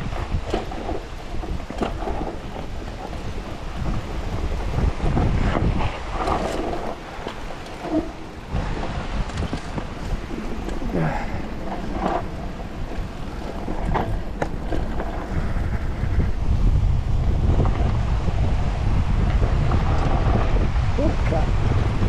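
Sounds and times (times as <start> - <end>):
bike rattling over stones: 0.0 - 22.0
wind buffeting microphone: 0.0 - 22.0.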